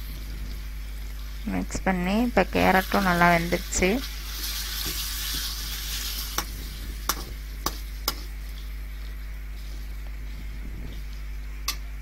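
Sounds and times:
light sizzle: 0.0 - 12.0
spatula scraping and clanking pan: 4.0 - 8.7.

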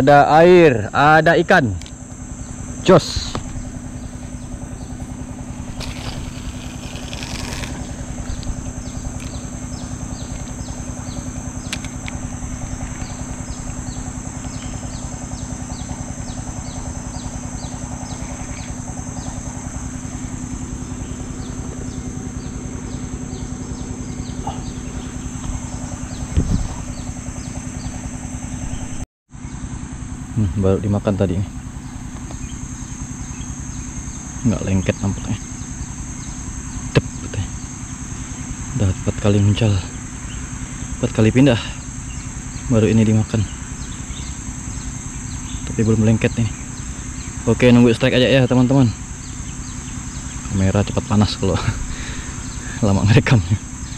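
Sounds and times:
high insect drone: 0.0 - 53.9
low hum: 0.0 - 53.9
rustle: 3.1 - 13.5.

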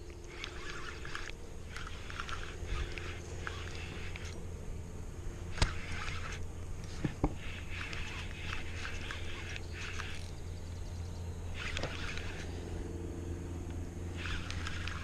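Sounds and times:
fishing reel cranking: 0.0 - 4.5, 5.4 - 12.7, 14.0 - 15.0
steady low hum: 0.0 - 15.0.

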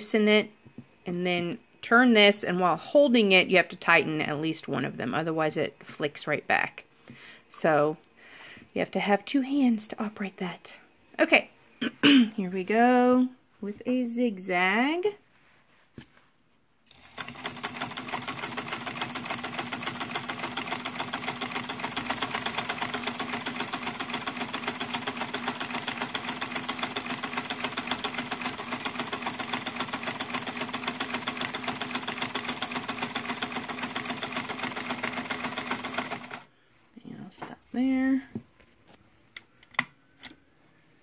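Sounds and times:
sewing machine running: 16.9 - 36.5.

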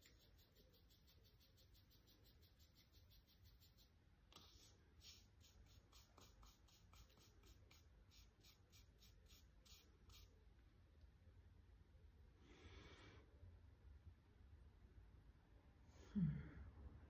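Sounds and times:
paintbrush scratching: 0.0 - 10.3.

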